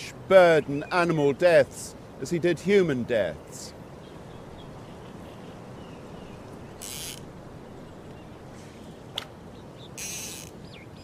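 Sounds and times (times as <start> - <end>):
outdoor background rush: 0.0 - 11.0
faint bird calls: 4.0 - 11.0
short high hiss: 6.8 - 7.3.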